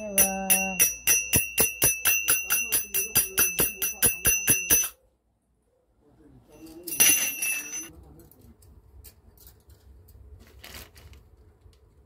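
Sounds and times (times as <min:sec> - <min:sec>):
hand cymbals clashing: 0:00.0 - 0:05.0.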